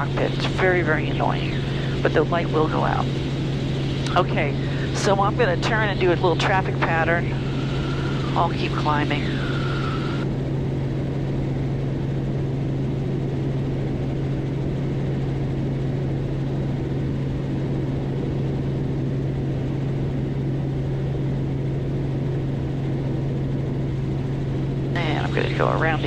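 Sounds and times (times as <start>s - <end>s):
helicopter engine and rotor drone: 0.0s - 26.0s.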